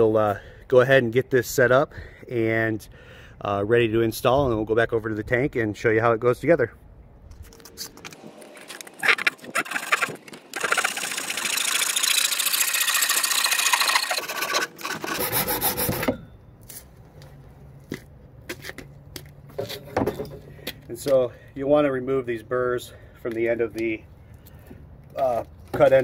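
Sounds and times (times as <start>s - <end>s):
hand saw cutting plastic pipe: 8.6s - 16.2s.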